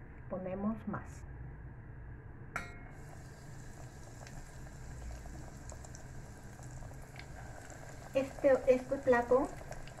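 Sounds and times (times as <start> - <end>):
metallic clink on pot: 2.6 - 3.0
oil sizzling and bubbling: 2.6 - 10.0.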